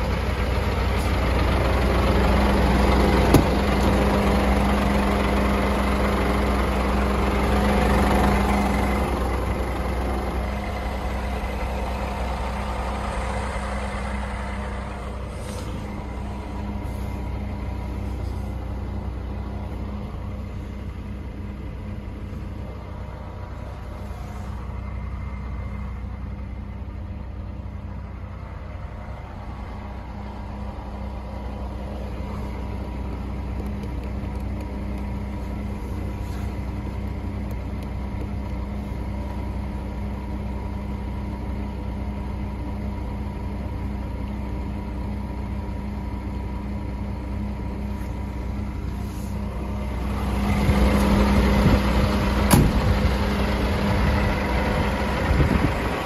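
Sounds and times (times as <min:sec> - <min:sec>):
diesel engine idling: 0:00.0 - 0:56.0
sharp knock: 0:52.5 - 0:52.8.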